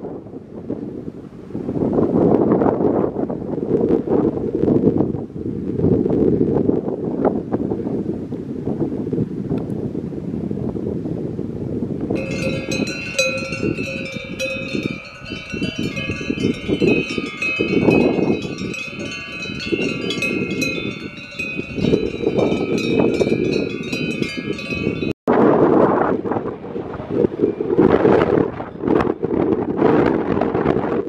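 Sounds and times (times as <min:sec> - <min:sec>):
wind rumble on microphone: 0:00.0 - 0:31.0
cowbells clanking: 0:12.2 - 0:25.2.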